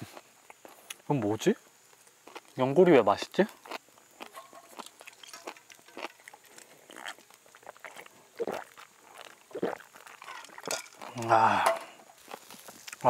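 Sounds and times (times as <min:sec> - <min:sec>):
chewing crunchy cartilage: 0:00.0 - 0:01.1, 0:01.8 - 0:02.6, 0:03.2 - 0:13.0
wet mouth clicks: 0:03.7 - 0:11.2.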